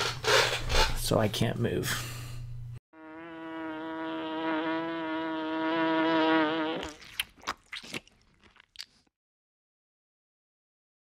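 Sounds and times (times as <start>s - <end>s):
cartoon bee buzzing: 2.9s - 7.3s.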